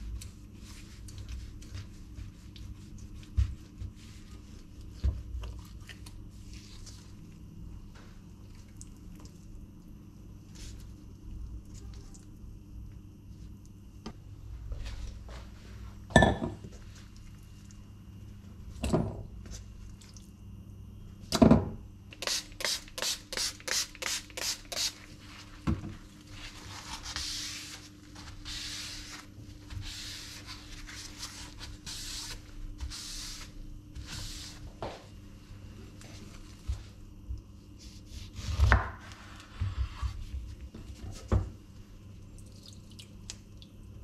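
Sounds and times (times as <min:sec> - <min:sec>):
cloth wiping board: 0:26.3 - 0:35.0.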